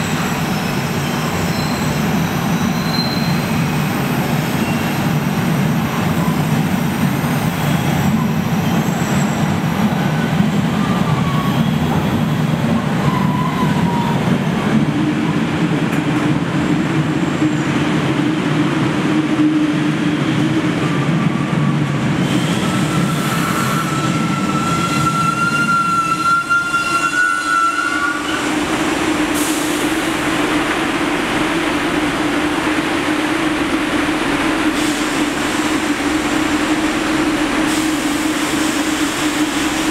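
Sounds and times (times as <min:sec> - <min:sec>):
high squeals of train wheels: 0:00.0 - 0:14.8, 0:19.2 - 0:30.3
subway train rumbling: 0:00.0 - 0:39.9.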